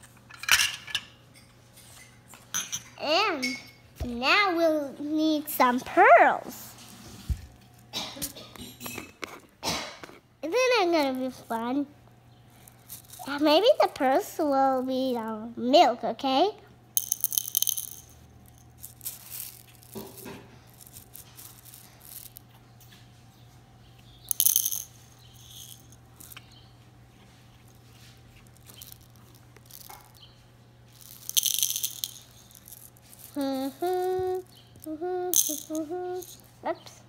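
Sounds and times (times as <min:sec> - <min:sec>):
plastic beads rattling: 0:12.5 - 0:15.1, 0:17.0 - 0:22.4, 0:24.2 - 0:26.5, 0:27.6 - 0:30.2, 0:30.9 - 0:36.5.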